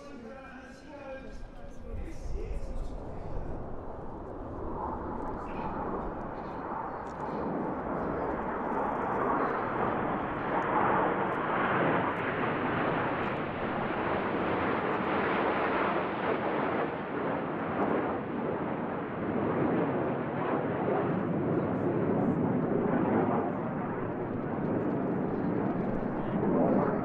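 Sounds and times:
jets flying past: 1.3 - 18.4.

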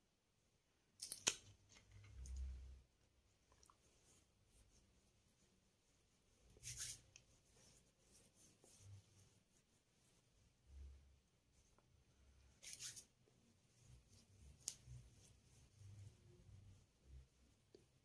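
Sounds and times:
hands rubbing skin: 3.4 - 10.5, 12.6 - 16.2.

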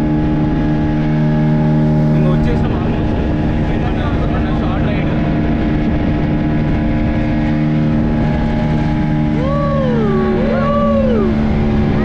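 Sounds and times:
outboard engine running: 0.0 - 12.0
rushing wind and water: 0.0 - 12.0
short rising-and-falling calls: 9.4 - 11.4.

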